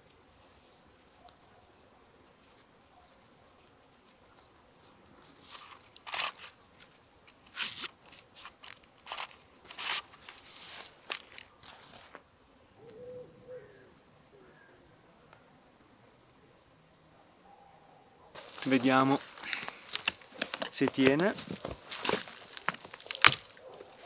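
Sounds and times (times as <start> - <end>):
rope crunching and rustling: 2.4 - 12.2, 18.4 - 24.0.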